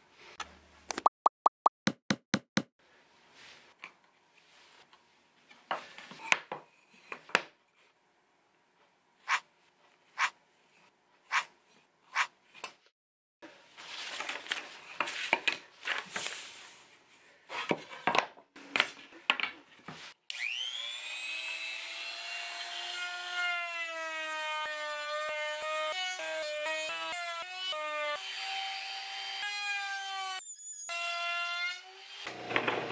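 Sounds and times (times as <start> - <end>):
trim router whining: 20.3 - 22.3.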